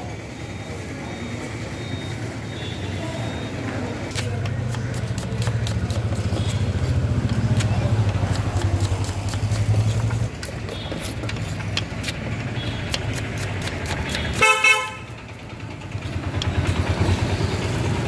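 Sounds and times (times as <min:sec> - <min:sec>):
vehicle engine rumbling: 0:00.0 - 0:18.0
vehicle horn honking: 0:14.2 - 0:15.2.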